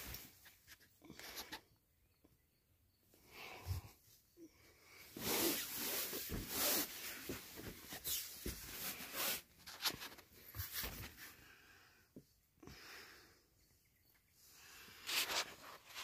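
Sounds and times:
rustling on camp cot: 0:05.0 - 0:11.4.

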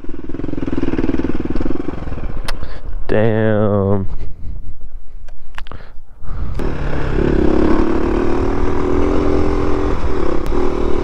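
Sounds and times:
motorcycle engine: 0:00.0 - 0:02.8, 0:06.4 - 0:11.0.

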